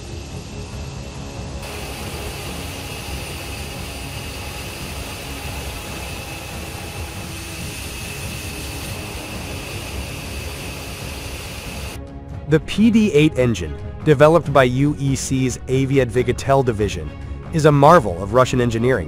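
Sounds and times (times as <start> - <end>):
faint high whine: 0.0 - 12.0
jet airliner engine noise: 0.0 - 12.0.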